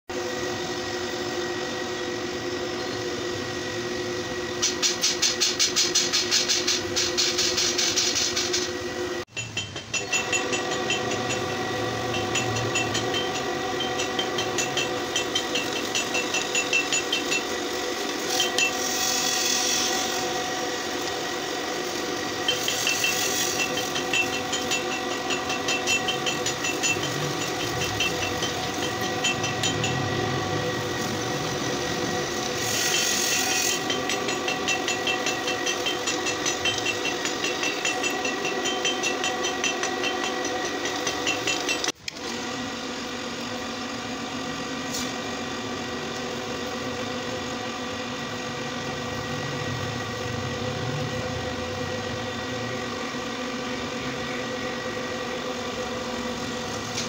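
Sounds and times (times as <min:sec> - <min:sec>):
drill press motor whine: 0:00.1 - 0:57.0
drill bit chattering in steel: 0:04.6 - 0:20.3, 0:22.3 - 0:42.0.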